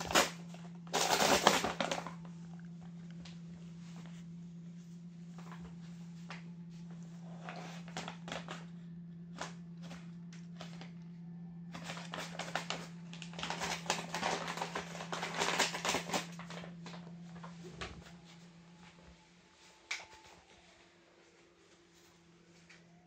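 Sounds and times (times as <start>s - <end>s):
paper bag crinkling and tearing: 0.0s - 2.3s, 7.3s - 8.7s, 11.7s - 17.6s
steady low hum: 0.0s - 23.0s.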